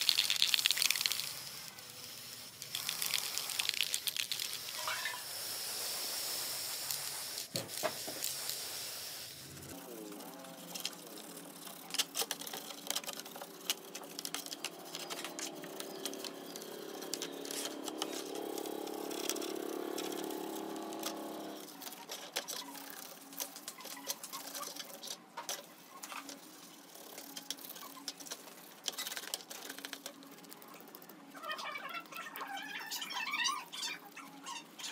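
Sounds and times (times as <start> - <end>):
stiff brush scrubbing circuit board: 4.4 - 25.1.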